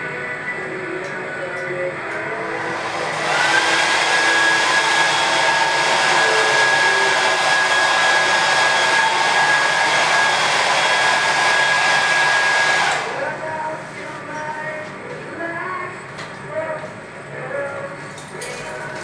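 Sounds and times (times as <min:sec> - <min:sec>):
hair dryer blowing: 0:01.9 - 0:13.8.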